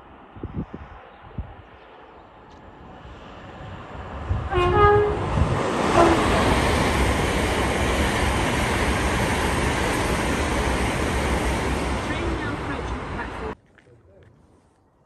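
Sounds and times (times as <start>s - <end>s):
train passing at speed: 0.0s - 13.6s
train horn two-note blast: 4.5s - 5.3s, 5.9s - 6.3s.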